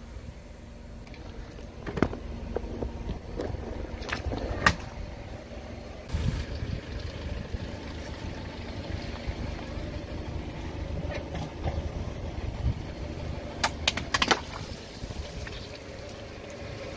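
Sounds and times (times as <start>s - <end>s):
car engine running low: 0.0s - 16.9s
water spraying: 6.1s - 9.7s.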